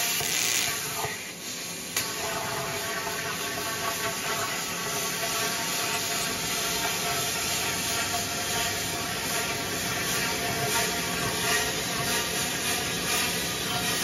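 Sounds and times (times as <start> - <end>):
plasma cutter hissing: 0.0 - 2.2.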